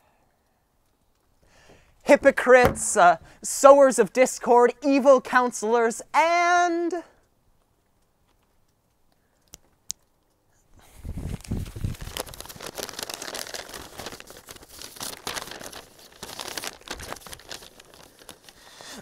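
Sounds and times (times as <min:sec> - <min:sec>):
dull knocks: 0:02.6 - 0:03.4
paper crinkling and rustling: 0:11.2 - 0:19.0.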